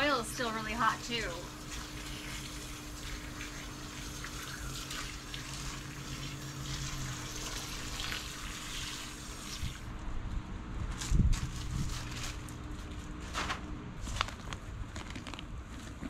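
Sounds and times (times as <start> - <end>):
water pouring from hose: 0.5 - 9.9.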